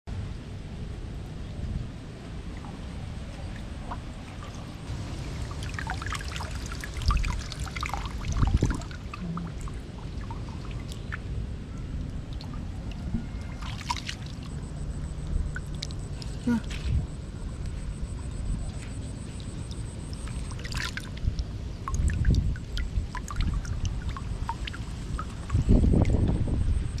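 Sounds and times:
shallow water trickling and splashing: 1.4s - 27.0s.

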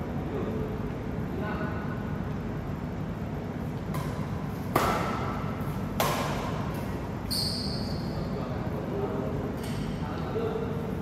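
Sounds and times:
racket hitting shuttlecock: 3.7s - 7.1s
short high squeak: 7.3s - 8.3s.

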